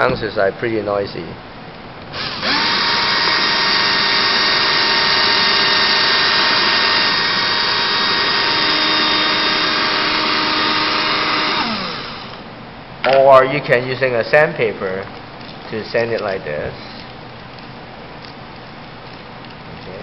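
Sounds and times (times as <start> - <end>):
cordless drill motor whine: 2.1 - 12.5.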